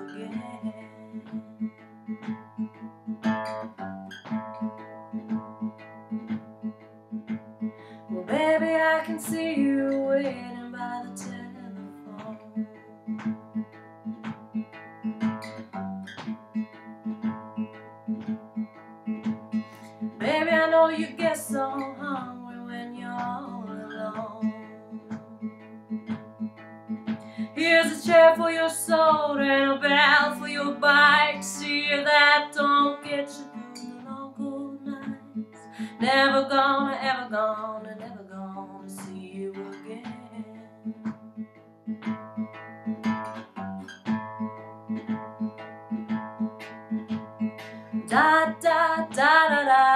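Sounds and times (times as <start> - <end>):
woman singing blues: 0.0 - 1.8, 8.1 - 12.9, 20.2 - 25.5, 27.2 - 41.1, 48.0 - 49.9
acoustic guitar picking: 0.0 - 49.9.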